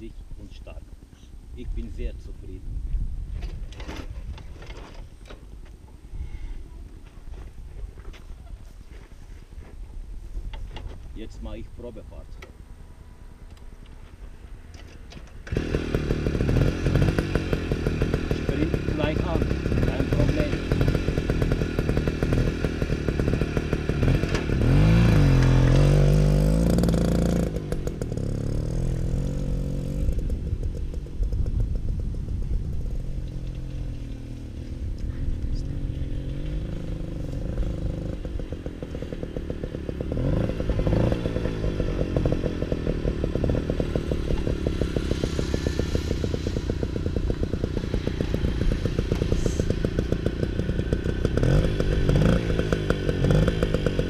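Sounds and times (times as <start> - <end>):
moped engine revving: 14.3 - 54.0.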